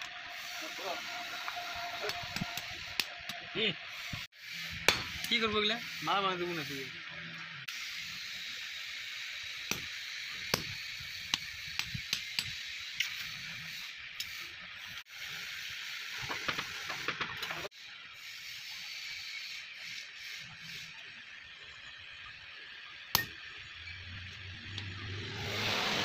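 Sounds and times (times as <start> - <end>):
steady hiss: 0.0 - 7.0, 7.6 - 26.0
hammer striking metal punch: 4.8 - 5.4, 9.7 - 12.5, 23.2 - 23.4.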